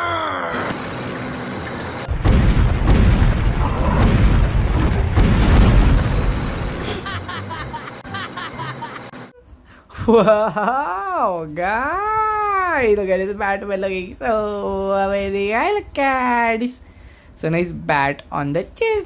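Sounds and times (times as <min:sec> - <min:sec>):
low rumbling boom: 0:02.1 - 0:07.0.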